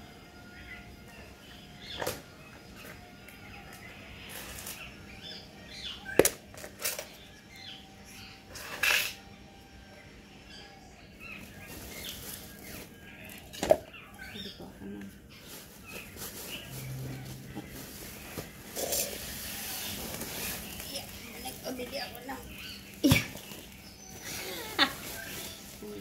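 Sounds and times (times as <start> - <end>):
soil rustling: 15.4 - 26.0.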